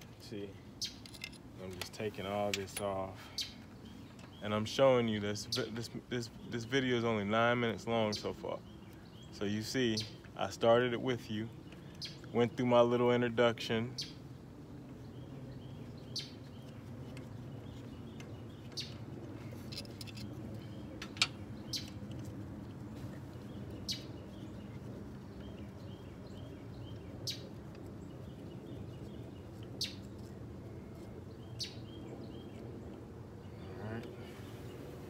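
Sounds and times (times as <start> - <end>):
birds chirping faintly: 0.0 - 35.0
low background hum: 0.0 - 35.0
hand tools and bolts clinking: 1.0 - 3.0, 19.6 - 20.4.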